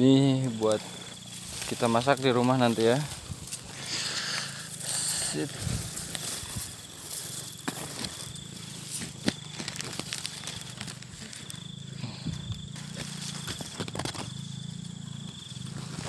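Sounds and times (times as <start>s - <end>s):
leaves and vines rustling: 0.0s - 16.0s
plastic sack crinkling: 4.8s - 11.5s
stems snapping: 8.9s - 11.6s.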